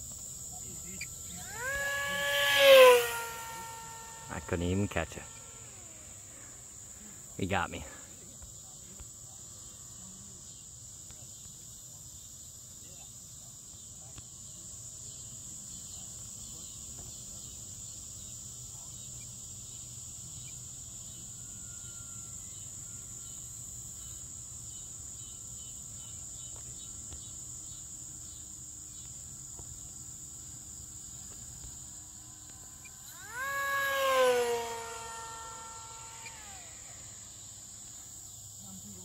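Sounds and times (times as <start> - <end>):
distant model jet whine: 0.0 - 10.4, 20.2 - 39.0
insects trilling: 0.0 - 39.0.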